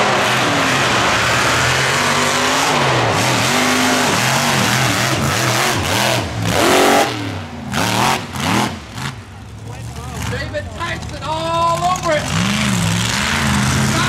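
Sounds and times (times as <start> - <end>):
loud rushing noise: 0.0 - 9.2
engine revving hard: 0.0 - 9.3, 12.0 - 14.0.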